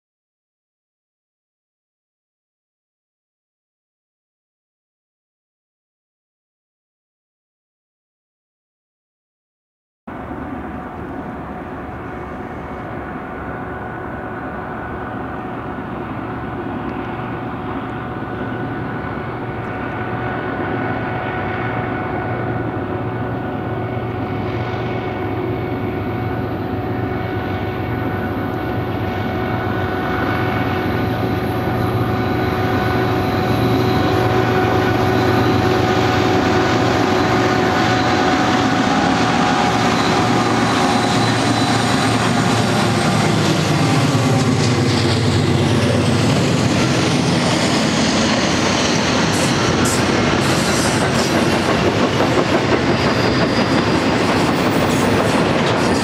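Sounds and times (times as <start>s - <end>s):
diesel locomotives droning: 10.1s - 56.0s.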